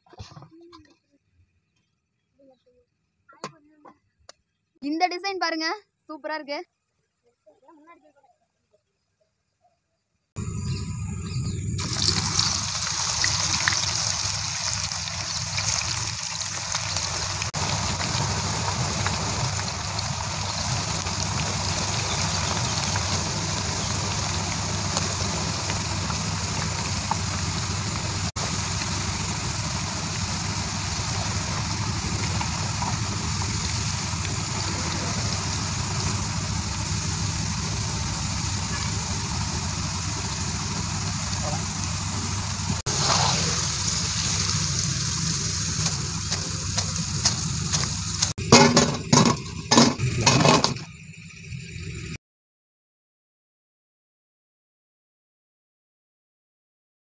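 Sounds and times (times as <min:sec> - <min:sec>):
chips deep-frying in oil: 0:11.8 - 0:50.8.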